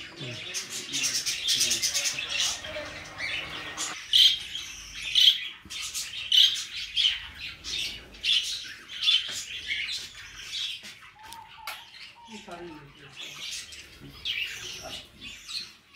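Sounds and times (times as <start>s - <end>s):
budgerigars chirping and squawking: 0.0s - 15.9s.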